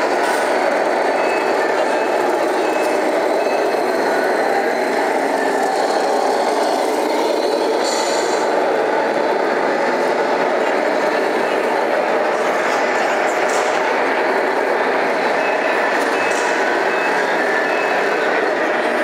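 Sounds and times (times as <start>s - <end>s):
roar of busy exhibition hall: 0.0s - 19.0s.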